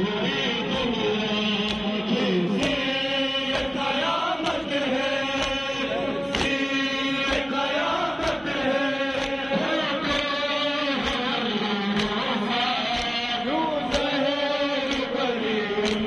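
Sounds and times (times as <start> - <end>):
men chanting a lament in unison: 0.0 - 16.0
chest-beating slaps: 6.3 - 6.6, 11.0 - 11.3, 13.9 - 14.2.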